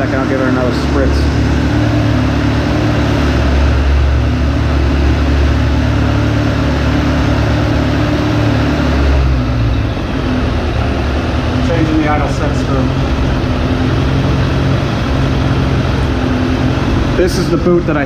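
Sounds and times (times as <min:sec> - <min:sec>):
motorcycle engine idling: 0:08.9 - 0:18.0.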